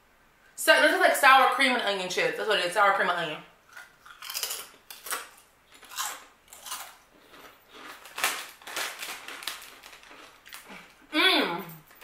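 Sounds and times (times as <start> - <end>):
crisp chips being chewed: 3.7 - 11.1.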